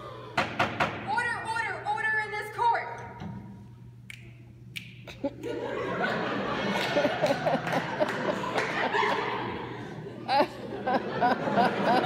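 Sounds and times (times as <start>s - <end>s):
audience laughing: 5.1s - 12.0s.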